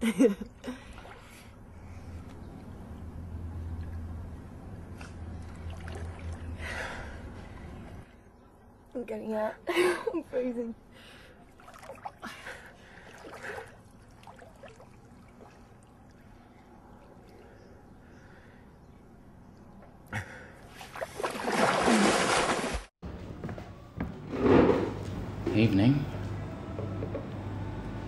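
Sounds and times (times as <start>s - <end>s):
water lapping and sloshing: 0.6s - 2.7s, 4.9s - 8.1s, 11.0s - 18.7s, 19.4s - 22.9s
loud rush of splashing water: 21.2s - 22.9s.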